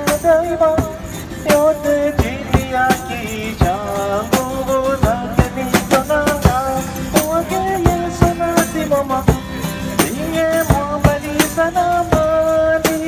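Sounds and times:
acoustic guitar: 0.0 - 13.0
bass drum and cymbal beat: 0.0 - 13.0
harmonica: 6.1 - 12.1.

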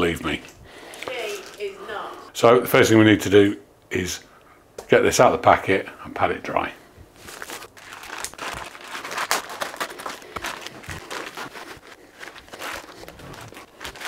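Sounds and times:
plastic bag crinkling: 7.2 - 14.0.

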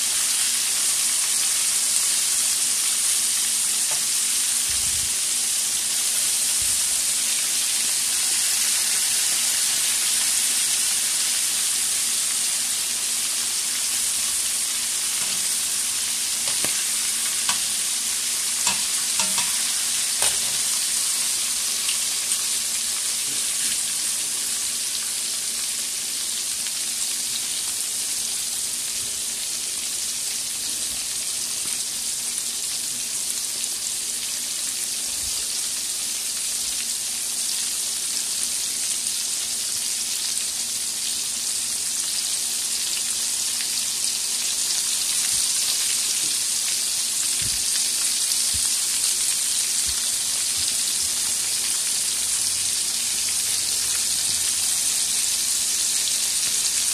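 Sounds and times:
fish sizzling in hot oil: 0.0 - 56.9.

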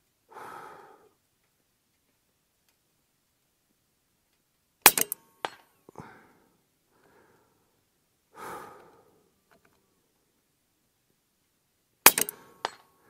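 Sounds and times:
soft breath out: 0.3 - 1.2, 5.9 - 9.4
air rifle shot crack: 4.8 - 5.6, 12.0 - 12.8
slug striking steel plate: 4.9 - 5.6, 12.1 - 12.8.

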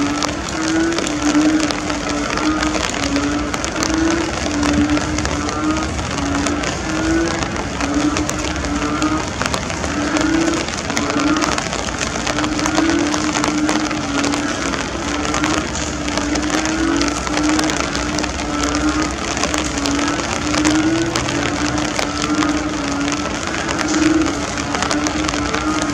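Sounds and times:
heavy rain falling: 0.0 - 25.9.

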